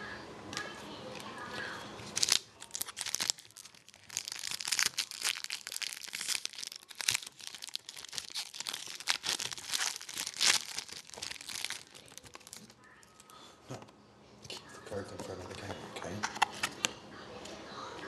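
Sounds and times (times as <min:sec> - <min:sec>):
foil wrapper tearing and crinkling: 0:02.0 - 0:13.3.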